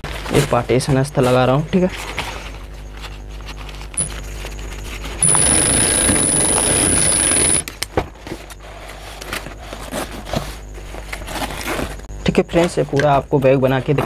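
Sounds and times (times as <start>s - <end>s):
sewing machine stitching whine: 4.0s - 4.2s, 5.2s - 7.8s.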